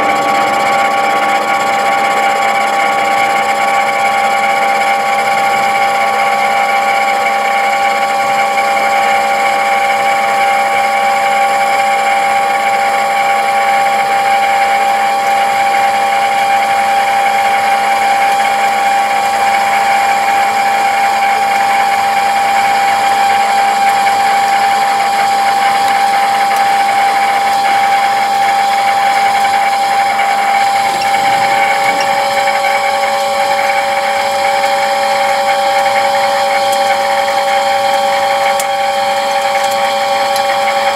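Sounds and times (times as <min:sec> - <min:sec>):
metal cutting noise: 0:00.0 - 0:07.2, 0:15.8 - 0:40.9
lathe machine whine: 0:00.0 - 0:40.9.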